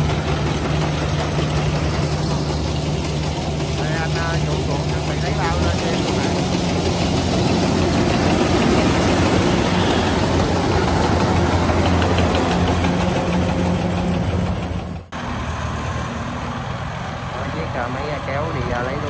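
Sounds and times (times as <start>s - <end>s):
diesel engine humming: 0.0s - 19.0s.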